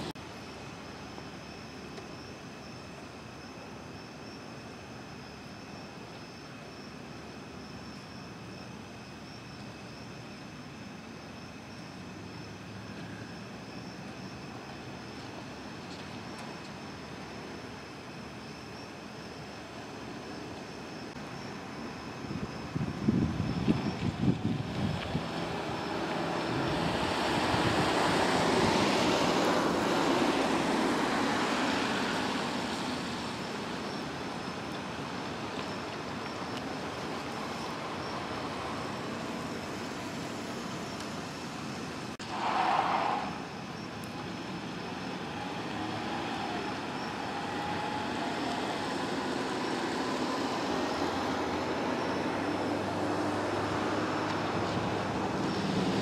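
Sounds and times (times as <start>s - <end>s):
traffic on wet road: 11.9s - 56.0s.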